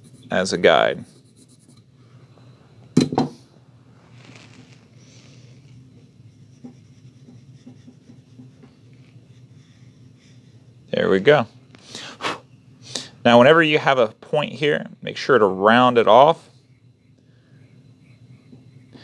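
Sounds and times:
pencil scratching on paper: 0.0s - 1.8s, 6.1s - 9.9s, 16.7s - 19.0s.

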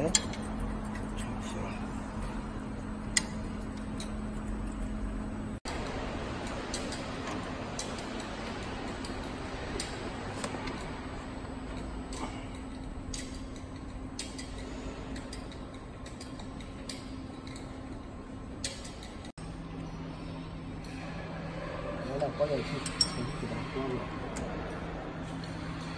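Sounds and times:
machinery hum: 0.0s - 25.9s
light regular clicks: 6.4s - 10.8s, 11.7s - 18.0s.

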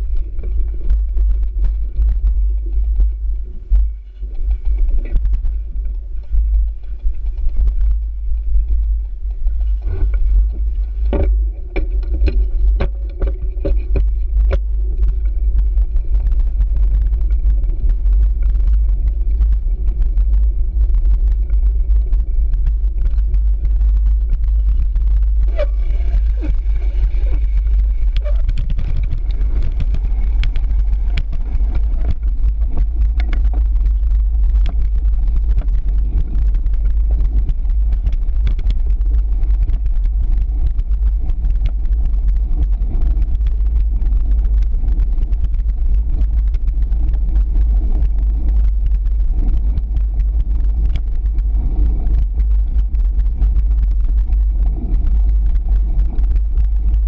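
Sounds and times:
bike rattling and knocking: 0.0s - 44.4s
wind and vibration rumble: 0.0s - 57.0s.

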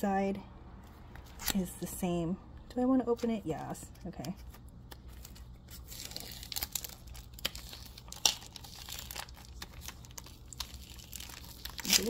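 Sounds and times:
packaging wrap crinkling and tearing: 4.4s - 12.0s.

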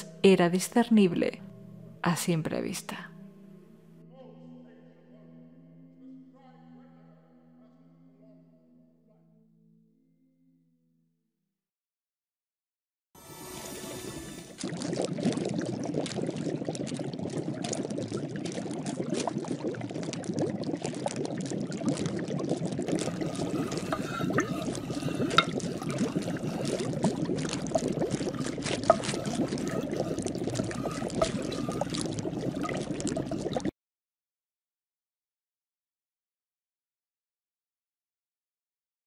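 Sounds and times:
liquid bubbling in a cauldron: 14.4s - 33.7s.

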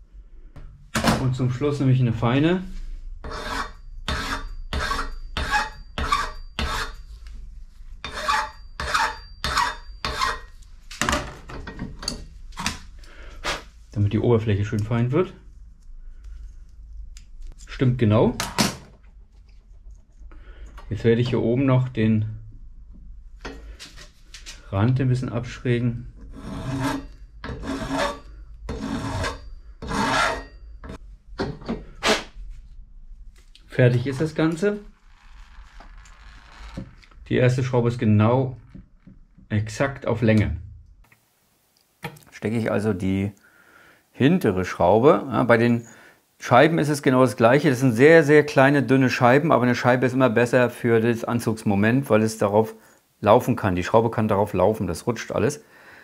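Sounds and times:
file strokes on metal: 2.7s - 7.3s, 8.0s - 10.6s, 26.3s - 31.0s.

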